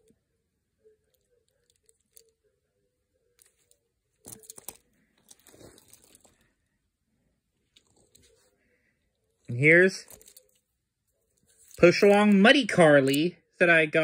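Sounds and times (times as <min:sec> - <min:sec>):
toys rustling and knocking: 0:03.4 - 0:06.5, 0:10.0 - 0:10.7.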